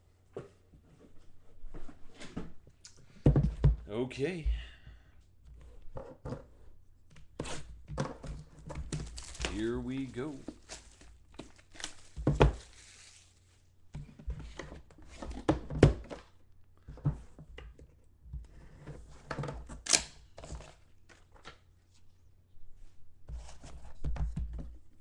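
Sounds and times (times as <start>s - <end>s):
shrink wrap tearing and crinkling: 9.0s - 13.6s.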